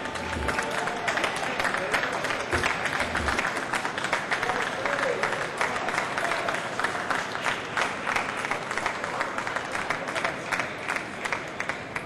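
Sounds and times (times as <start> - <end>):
murmur of voices: 0.0 - 5.7
people applauding: 0.0 - 12.0.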